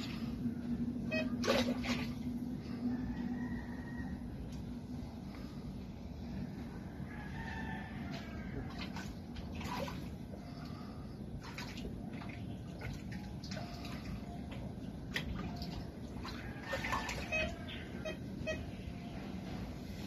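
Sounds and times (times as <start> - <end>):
muddy water sloshing and splashing: 0.0 - 2.8, 8.6 - 18.3.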